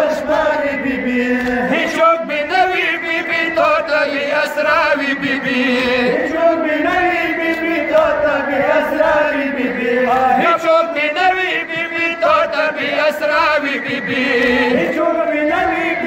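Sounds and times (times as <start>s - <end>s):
men chanting a lament: 0.0s - 16.0s.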